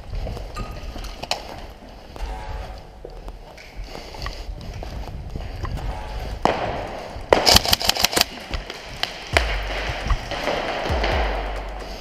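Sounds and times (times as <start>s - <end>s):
airsoft rifle shots: 6.4s - 8.5s, 9.1s - 11.7s.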